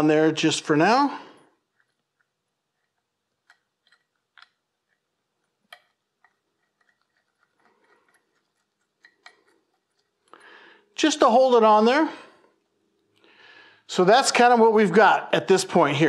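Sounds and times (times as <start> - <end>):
gloved fingers rustling: 1.5 - 10.4
nut threading clicks: 1.7 - 10.3.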